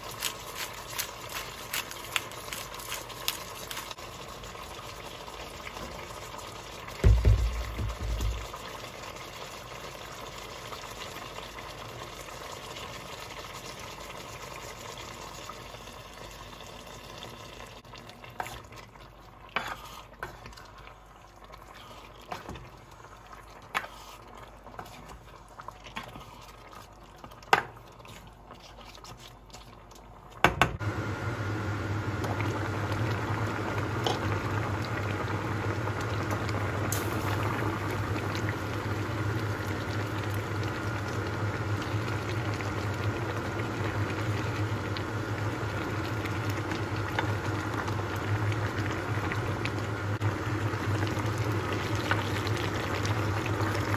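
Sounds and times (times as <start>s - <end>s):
sauce bubbling in a saucepan: 0.0s - 53.9s
spatula scraping a pan: 19.5s - 20.5s.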